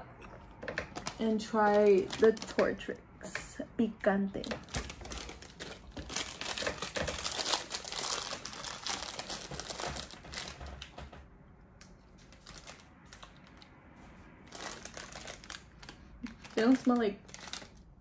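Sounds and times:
plastic chip bag crinkling: 0:00.6 - 0:03.0, 0:04.4 - 0:11.1, 0:12.1 - 0:13.7, 0:14.4 - 0:18.0.

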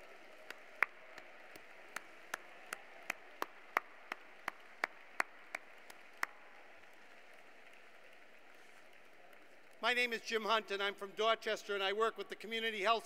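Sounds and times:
sharp hand claps: 0:00.0 - 0:09.8.

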